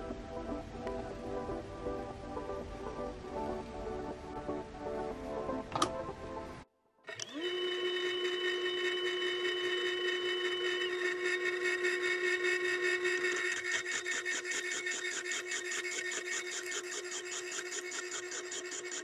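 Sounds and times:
lathe spindle whine: 0:07.1 - 0:19.0
cutting tool rasping on steel: 0:11.1 - 0:19.0.

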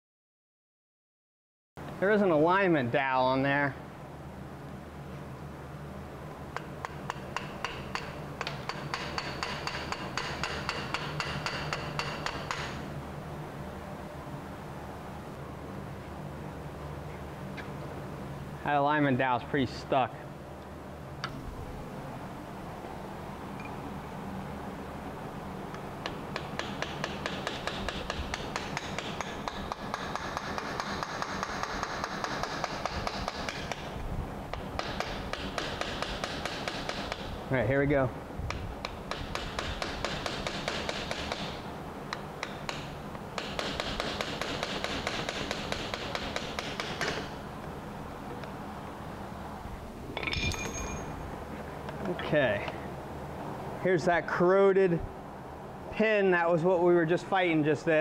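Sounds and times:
metal-on-metal tapping: 0:06.6 - 0:12.8, 0:50.2 - 0:51.2.

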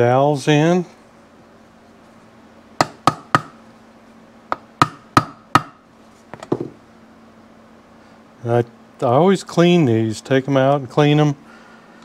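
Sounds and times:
hammer tapping pins into metal: 0:02.8 - 0:03.6.

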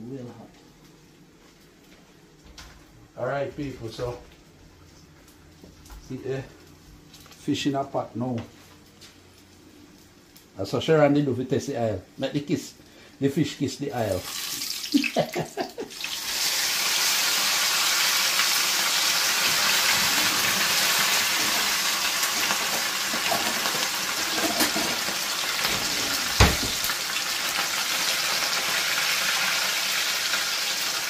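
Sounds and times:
fish sizzling in hot oil: 0:14.2 - 0:31.0.

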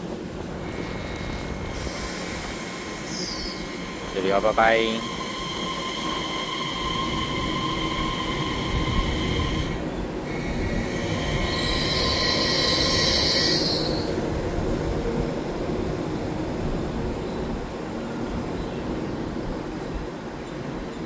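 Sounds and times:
train running gear rumble: 0:00.0 - 0:21.0
high-pitched squealing tones: 0:01.6 - 0:14.2.

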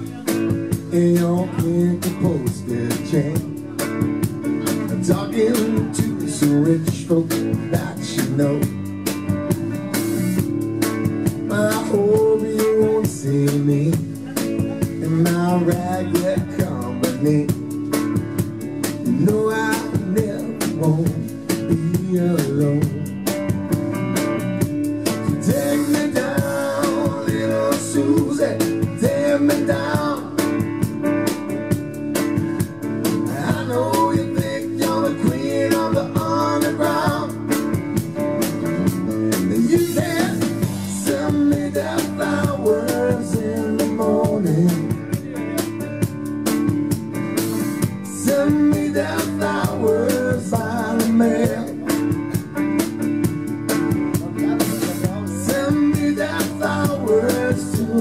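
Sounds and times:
person singing: 0:00.0 - 0:08.8, 0:25.3 - 0:30.7, 0:33.2 - 0:37.7, 0:38.8 - 0:45.7, 0:48.0 - 0:52.2, 0:54.1 - 0:58.0
drums keeping a beat: 0:00.0 - 0:58.0
electric bass: 0:00.0 - 0:58.0
electric guitar: 0:00.0 - 0:58.0.

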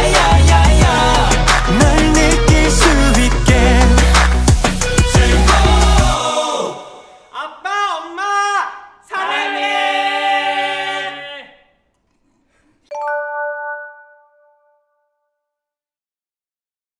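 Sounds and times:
men singing a cappella: 0:00.0 - 0:07.3
bright chime ringing: 0:12.9 - 0:14.9.

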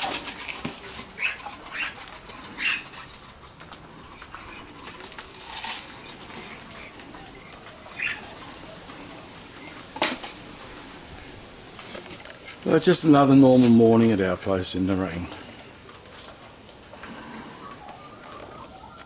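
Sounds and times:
bird scratchy calls: 0:00.0 - 0:13.8, 0:15.4 - 0:19.0
faint clicks: 0:14.3 - 0:19.0.

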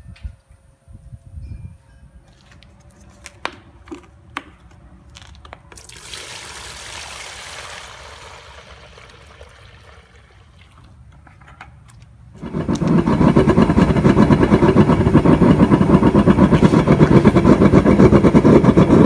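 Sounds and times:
water poured into plastic tub: 0:05.8 - 0:11.0.

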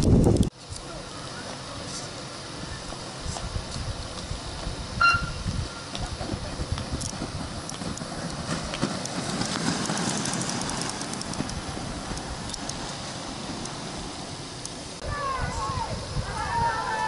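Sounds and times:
inline skates rolling on asphalt: 0:00.8 - 0:15.0
sharp start signal tone: 0:05.0 - 0:05.4.

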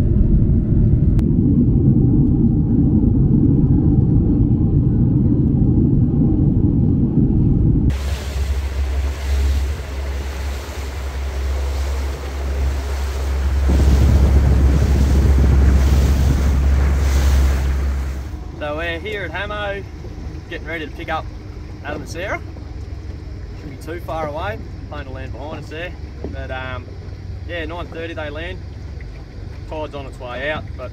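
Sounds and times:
boat engine drone: 0:00.0 - 0:30.9
dense low rumble: 0:00.0 - 0:30.9
wind buffeting microphone: 0:00.0 - 0:30.9
water rushing: 0:07.9 - 0:30.9.

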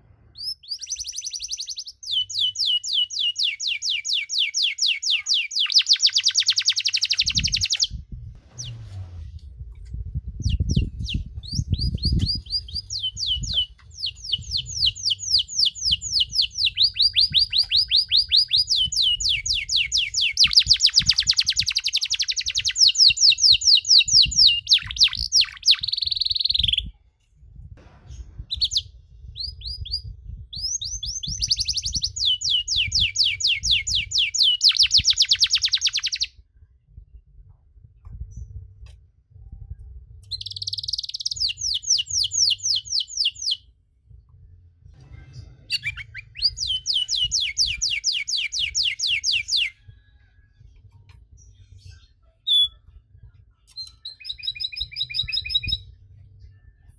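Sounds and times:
canary singing trills: 0:00.4 - 0:08.0, 0:10.4 - 0:26.9, 0:28.5 - 0:36.3, 0:40.3 - 0:43.6, 0:45.7 - 0:49.8, 0:51.8 - 0:52.9, 0:53.7 - 0:56.0.

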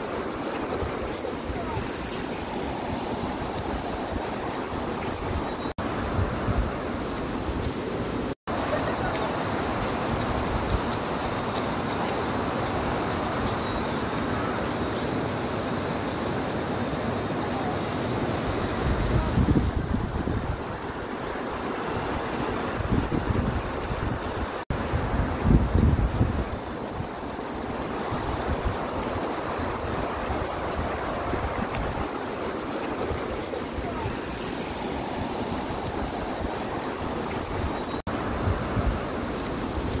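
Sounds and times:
stream rushing over rocks: 0:00.0 - 0:40.0
wind buffeting microphone: 0:18.5 - 0:21.0, 0:21.9 - 0:40.0.

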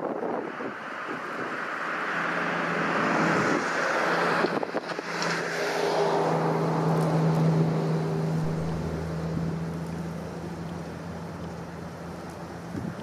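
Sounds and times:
low engine hum: 0:00.0 - 0:13.0
vehicle rushing past: 0:00.3 - 0:10.6.

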